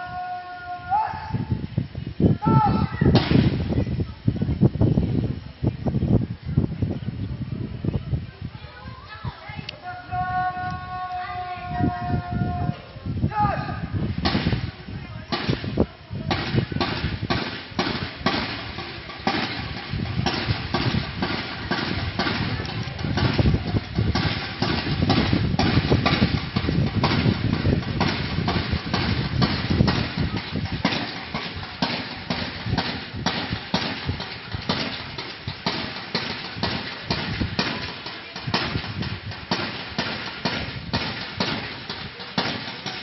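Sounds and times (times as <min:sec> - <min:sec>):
sharp rhythmic knocks: 0:16.3 - 0:43.0.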